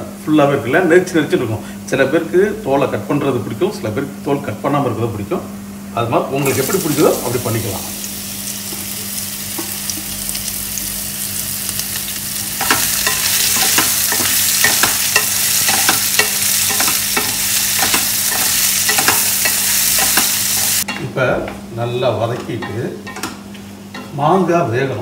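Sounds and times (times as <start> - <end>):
mango sizzling in hot oil: 6.4 - 20.9.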